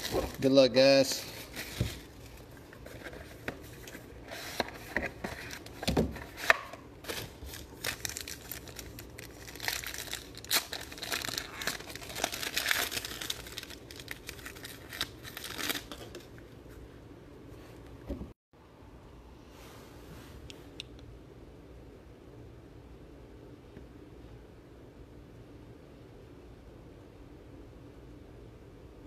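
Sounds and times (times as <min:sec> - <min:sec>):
card pack crinkling: 0:00.0 - 0:16.3
plastic shrink-wrap tearing: 0:07.1 - 0:16.2.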